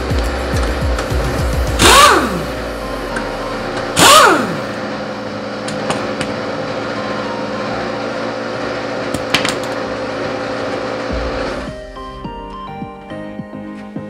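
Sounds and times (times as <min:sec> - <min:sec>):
pneumatic impact wrench burst: 0:01.3 - 0:04.8.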